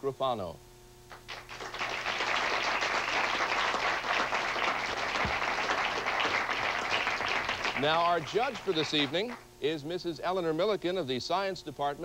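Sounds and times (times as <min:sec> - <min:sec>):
studio audience applauding: 0:01.1 - 0:09.4.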